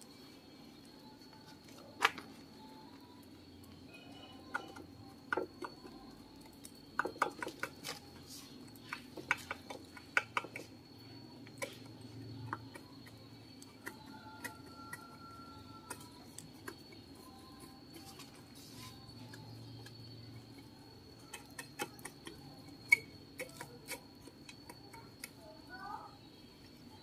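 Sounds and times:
faint high-pitched tone: 0.0s - 27.0s.

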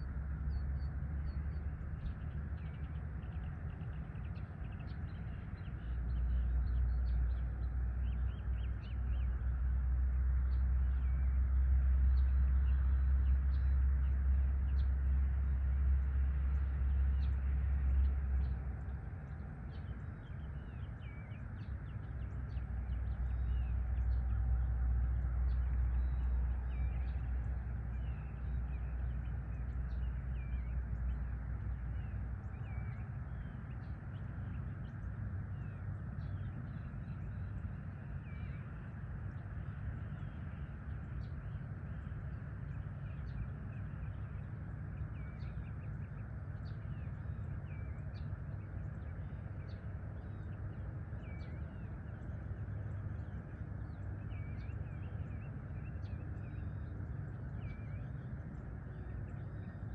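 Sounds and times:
birds chirping: 16.9s - 59.9s.

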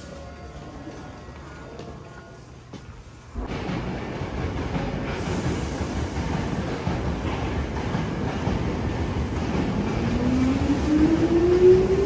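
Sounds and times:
train wheels rumbling on rails: 0.8s - 12.0s.

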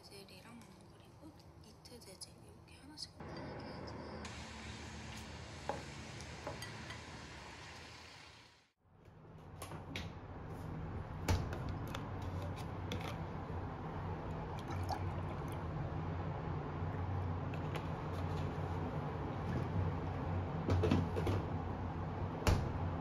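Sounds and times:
low steady hum: 8.9s - 23.0s
milk pouring into a mug: 14.3s - 15.7s.

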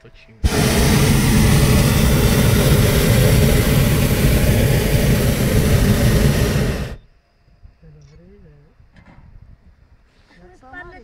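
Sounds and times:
propane burner roaring: 0.4s - 7.0s.

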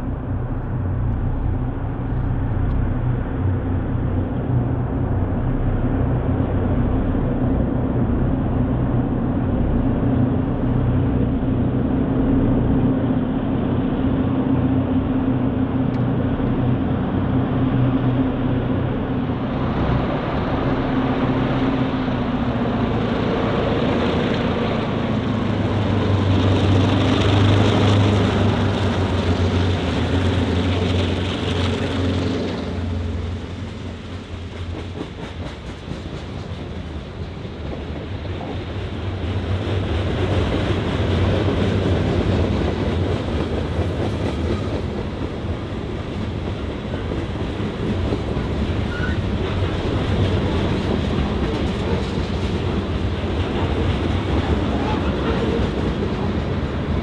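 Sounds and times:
diesel locomotive engines droning: 0.0s - 57.0s
wheels clattering on rails: 21.7s - 57.0s.

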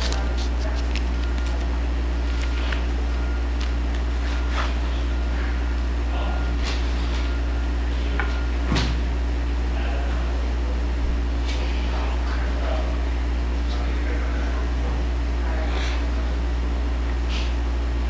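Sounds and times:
electrical mains hum: 0.0s - 18.0s.

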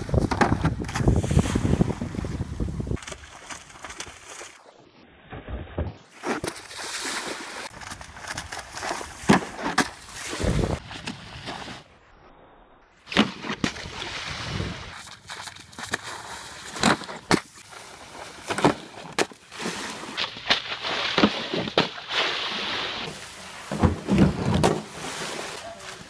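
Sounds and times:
boards slapping water: 0.0s - 4.7s, 5.4s - 11.9s, 13.1s - 26.0s
water spray and splashing: 6.1s - 11.9s, 13.1s - 26.0s.

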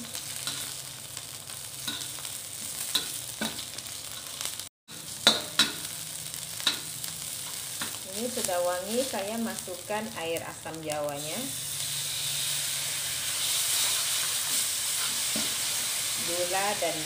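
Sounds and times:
food sizzling in oil: 0.0s - 17.0s
metal spatula scraping and tapping pan: 1.8s - 6.0s.

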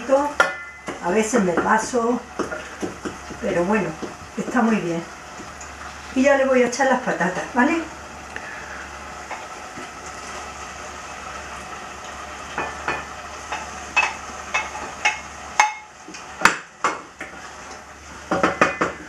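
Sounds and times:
stew sizzling in a pan: 0.0s - 19.0s
spatula scraping and tapping: 0.4s - 4.7s, 12.6s - 16.2s.

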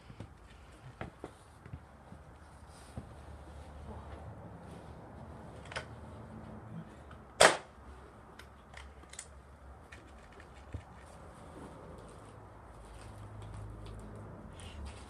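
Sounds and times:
air rifle shot with echo: 7.4s - 7.7s.

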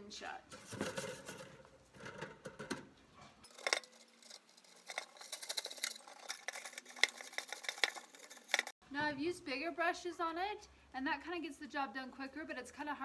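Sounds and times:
wire brush scrubbing metal: 3.4s - 8.7s.

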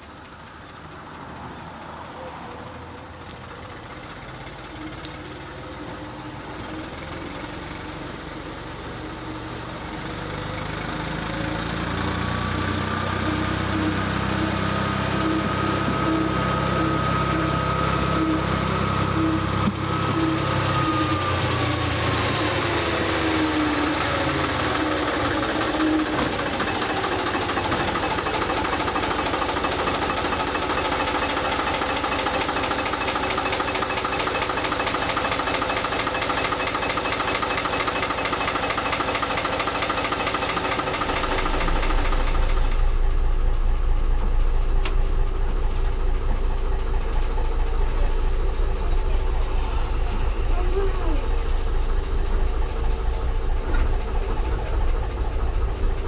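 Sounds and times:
engine running: 0.0s - 56.0s
deep low rumble: 41.2s - 56.0s.

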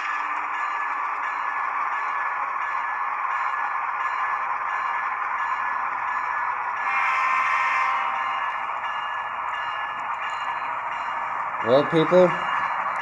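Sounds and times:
model train whirring: 0.0s - 13.0s.

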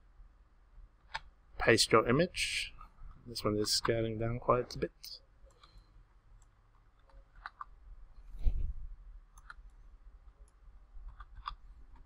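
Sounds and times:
computer mouse clicks: 1.0s - 1.3s, 5.5s - 5.8s, 6.4s - 7.8s, 9.3s - 9.8s, 10.4s - 12.0s.

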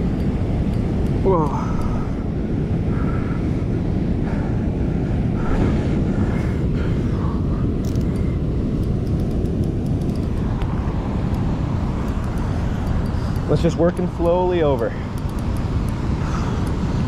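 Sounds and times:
faint ticks: 7.8s - 10.7s, 11.3s - 16.8s.

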